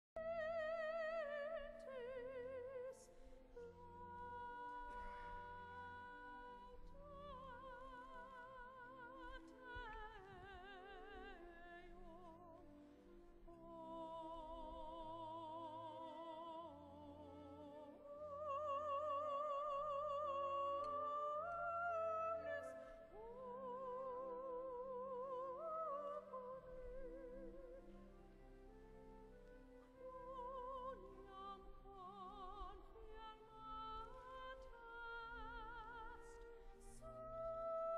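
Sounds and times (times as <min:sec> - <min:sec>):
solo singer with strong vibrato: 0:00.2 - 0:28.0, 0:30.0 - 0:37.9.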